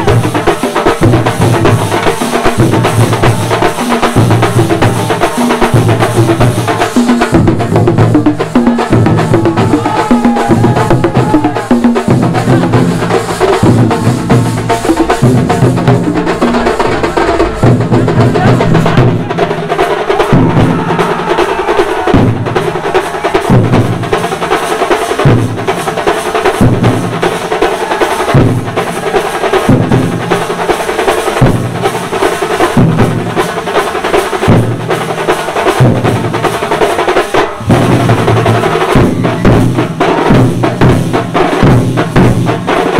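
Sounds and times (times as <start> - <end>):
drums played fast and loud: 0.0 - 42.9.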